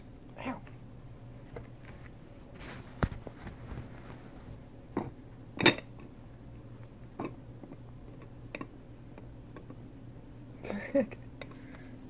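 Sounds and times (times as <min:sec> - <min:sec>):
low steady hum: 0:00.0 - 0:12.0
glass and ceramic clinking: 0:05.0 - 0:05.9.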